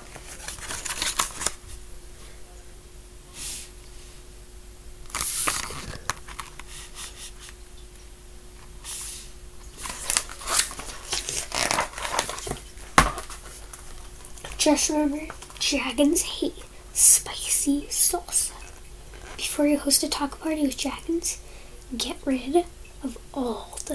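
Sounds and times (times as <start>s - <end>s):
paper pages rustling: 0.0s - 1.8s, 5.1s - 7.6s, 9.8s - 15.6s.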